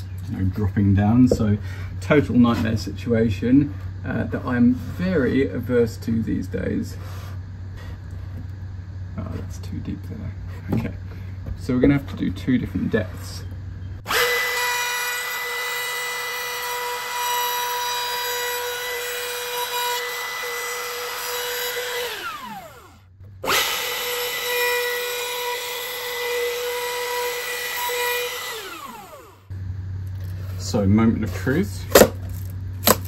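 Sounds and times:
trim router whining: 14.0s - 29.6s.

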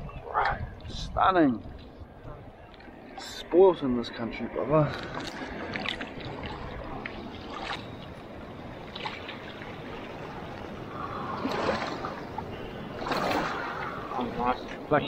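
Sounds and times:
seawater splashing and sloshing: 4.8s - 15.0s.

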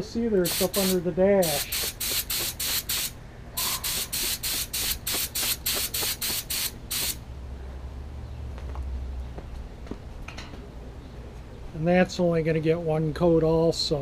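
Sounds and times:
paint spray gun hissing: 0.4s - 7.2s.

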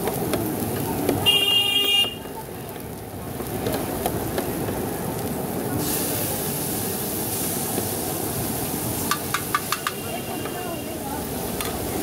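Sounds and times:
liquid sizzling on hot griddle: 0.0s - 12.0s
spatula clacking on griddle: 9.0s - 10.6s.

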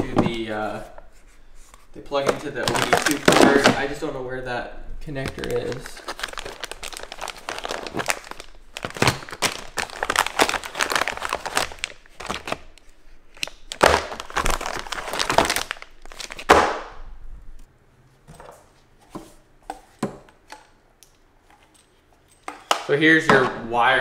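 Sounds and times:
plastic bags crinkling: 2.1s - 4.0s, 5.1s - 16.6s.

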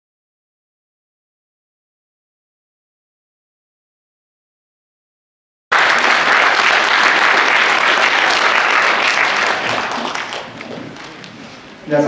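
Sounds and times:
audience applauding: 5.7s - 11.8s.

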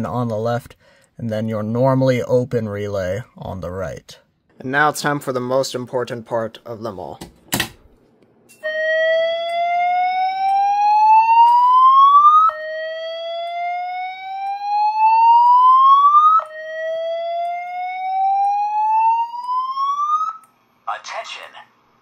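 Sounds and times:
slow whoop evacuation alarm: 8.6s - 20.6s.

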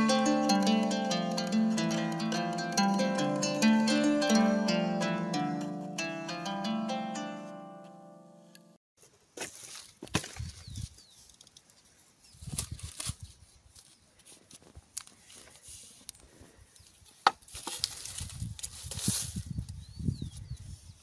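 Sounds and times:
dry leaves rustling: 17.4s - 19.5s.

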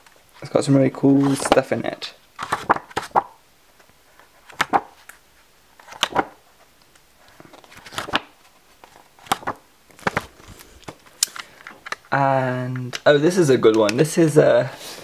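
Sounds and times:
book pages turning: 0.3s - 1.8s, 2.4s - 5.2s, 5.8s - 12.1s.

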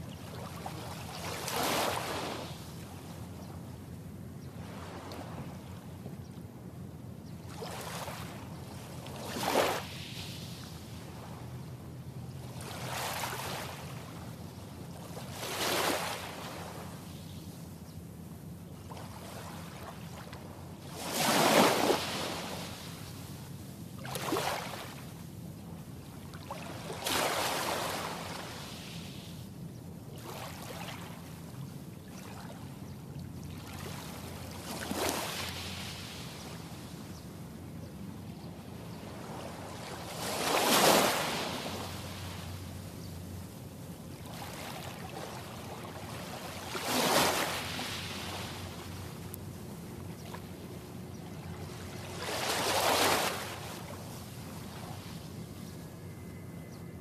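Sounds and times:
small waves washing on sand: 0.0s - 2.8s, 7.6s - 11.4s, 12.5s - 14.2s, 14.9s - 17.0s, 18.9s - 23.3s, 24.0s - 25.2s, 26.3s - 29.4s, 33.5s - 36.9s, 39.0s - 42.7s, 44.1s - 49.4s, 51.4s - 55.4s
faint low hum: 53.5s - 57.0s.

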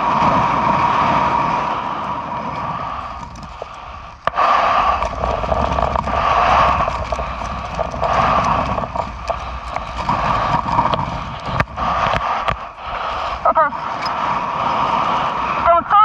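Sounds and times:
wind buffeting microphone: 0.0s - 16.0s
outboard motor knocking on rail: 3.2s - 13.3s.

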